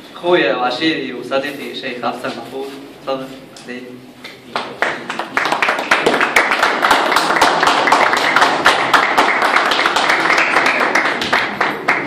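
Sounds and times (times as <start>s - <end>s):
crowd applauding: 4.6s - 12.0s.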